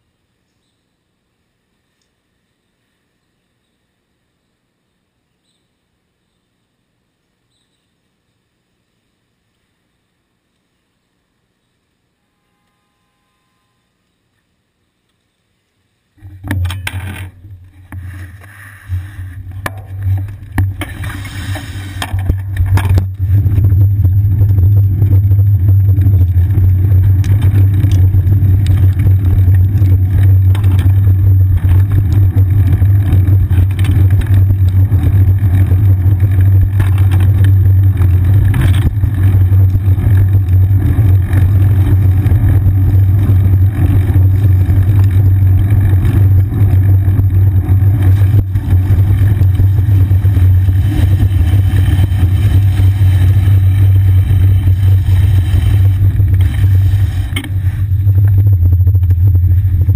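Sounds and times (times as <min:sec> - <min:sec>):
road vibration rumble: 0:16.2 - 0:59.9
wind on camera: 0:17.5 - 0:59.9.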